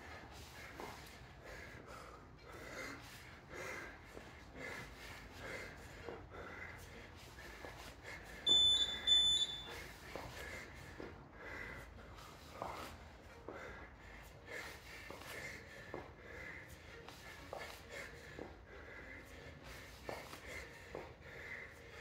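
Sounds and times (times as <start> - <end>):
man breathing hard: 0.0 - 22.0
short high electronic beeps: 8.5 - 9.7.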